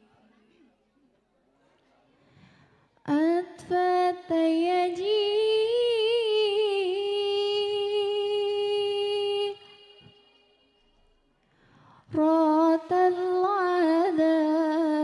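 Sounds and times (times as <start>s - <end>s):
woman singing into a microphone: 3.0s - 10.4s, 11.9s - 15.0s.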